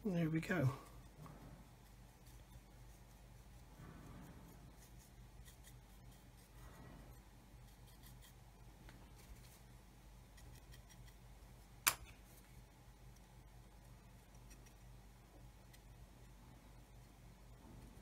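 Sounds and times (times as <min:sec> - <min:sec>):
low steady hum: 0:00.0 - 0:18.0
paintbrush scratchy strokes: 0:00.5 - 0:11.2.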